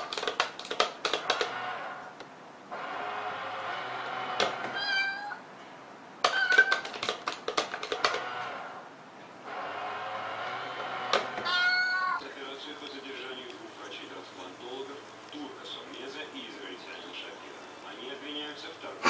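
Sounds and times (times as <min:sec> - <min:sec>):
clicks and taps: 0:00.0 - 0:01.6, 0:06.2 - 0:08.3
toy cat meow: 0:04.7 - 0:05.4, 0:06.3 - 0:07.0, 0:11.4 - 0:12.2.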